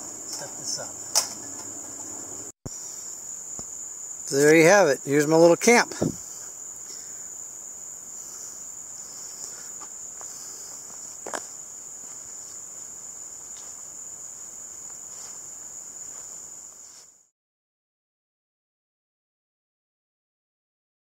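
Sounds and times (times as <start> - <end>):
crickets trilling: 0.0 - 17.3.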